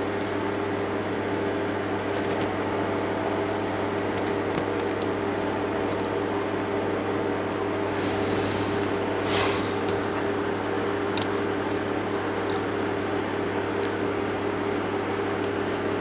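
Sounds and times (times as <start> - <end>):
breath through the nose: 7.9 - 9.8.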